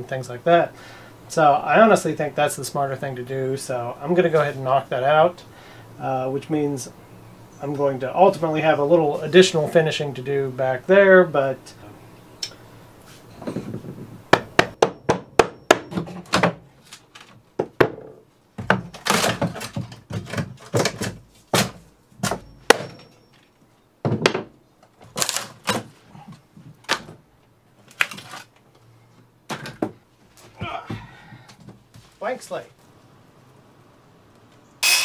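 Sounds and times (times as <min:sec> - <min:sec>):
wood cracking and breaking: 0:18.6 - 0:21.8, 0:25.0 - 0:25.9, 0:27.9 - 0:28.6
sharp hammer blows: 0:34.8 - 0:35.0.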